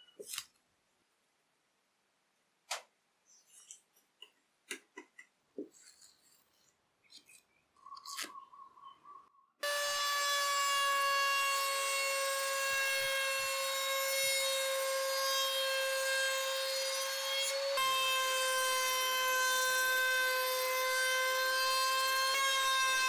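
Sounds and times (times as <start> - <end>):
router high whine cutting wood: 9.6 - 23.0.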